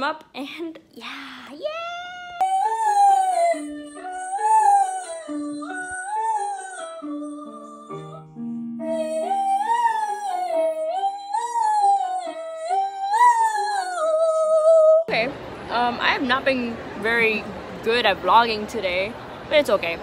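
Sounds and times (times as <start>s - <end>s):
person singing vocal scales: 1.2s - 15.1s.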